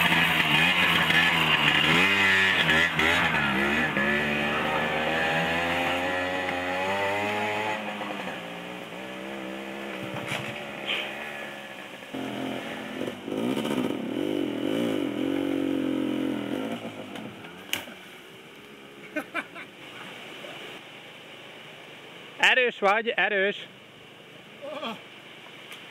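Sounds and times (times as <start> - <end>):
moped engines revving: 0.0 - 17.7.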